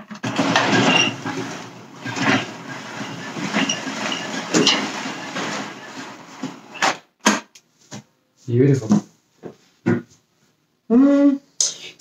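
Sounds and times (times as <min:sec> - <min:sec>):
vacuum cord rewinding: 0:00.0 - 0:07.0.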